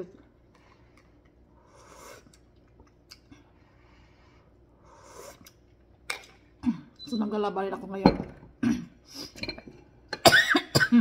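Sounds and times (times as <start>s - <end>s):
slurping sips from a spoon: 1.6s - 2.5s, 4.8s - 5.6s.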